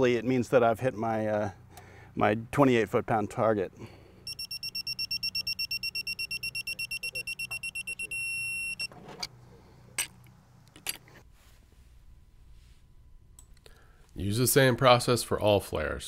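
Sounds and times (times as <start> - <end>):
torque wrench beeping: 4.2 - 8.9.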